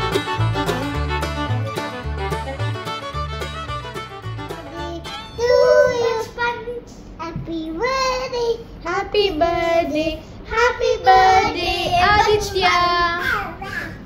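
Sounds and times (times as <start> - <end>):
young child singing: 4.8 - 14.0.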